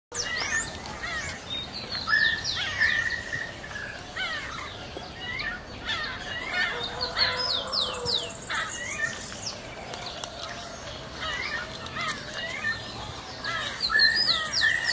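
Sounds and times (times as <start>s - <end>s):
birds singing and calling: 0.1s - 14.9s.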